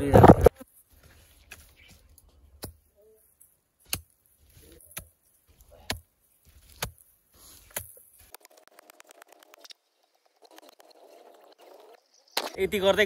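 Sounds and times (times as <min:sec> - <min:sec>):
hoe chopping into soil: 0:03.9 - 0:08.3.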